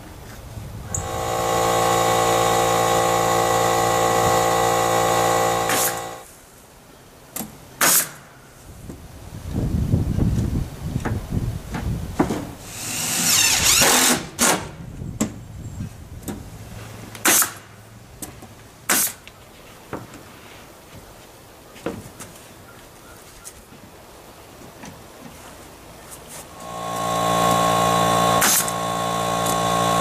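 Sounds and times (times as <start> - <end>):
whirring: 0.9 - 6.3, 26.5 - 30.0
nail gun shots with air hiss: 5.6 - 6.2, 7.8 - 8.3, 12.6 - 14.8, 17.2 - 17.7, 18.9 - 19.2, 28.3 - 29.8.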